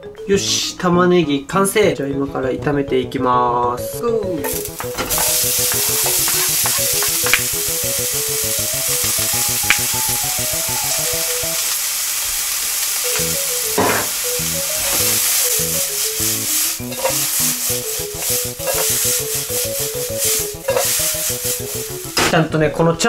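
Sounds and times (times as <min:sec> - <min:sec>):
background music: 0:00.0 - 0:11.8, 0:13.0 - 0:23.0
spatula stirring onion: 0:04.5 - 0:09.3, 0:12.8 - 0:22.2
onion sizzling in oil: 0:04.5 - 0:22.2.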